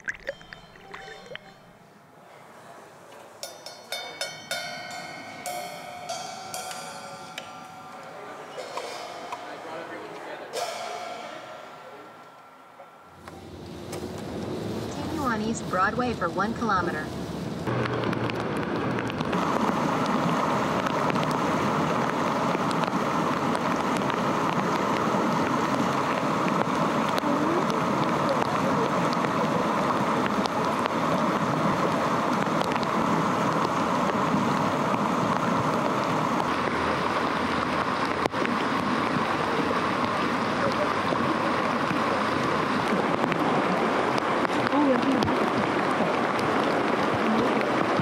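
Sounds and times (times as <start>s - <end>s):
running water rushing: 0.0s - 48.0s.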